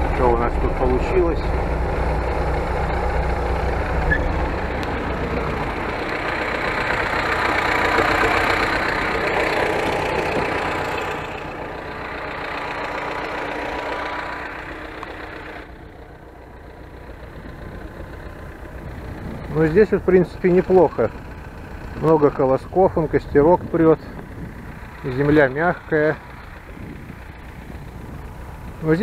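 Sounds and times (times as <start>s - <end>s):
tractor engine idling: 0.0s - 29.0s.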